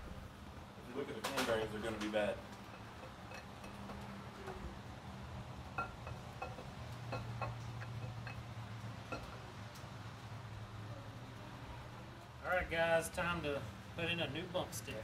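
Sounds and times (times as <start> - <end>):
steady low hum: 0.0 - 15.0
light metallic clinks: 2.6 - 4.6, 5.7 - 9.8.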